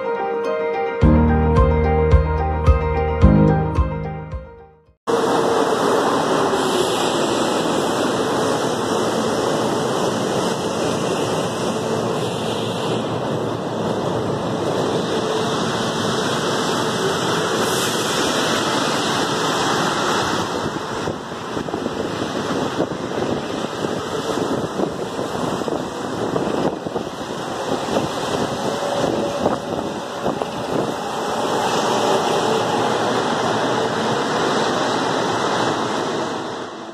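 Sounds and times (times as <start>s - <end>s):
train rushing past a platform: 5.1s - 36.9s.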